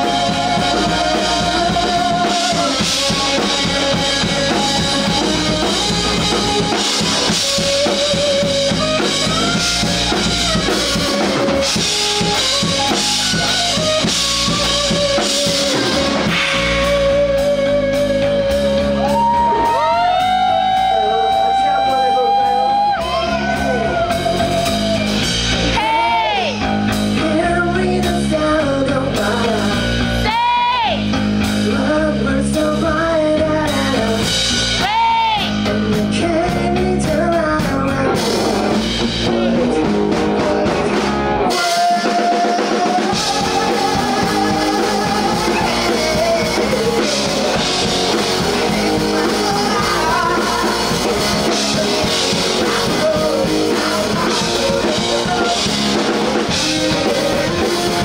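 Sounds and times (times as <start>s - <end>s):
bass guitar: 0.0s - 58.0s
drums: 0.0s - 58.0s
electric guitar: 0.0s - 58.0s
person singing: 0.0s - 58.0s.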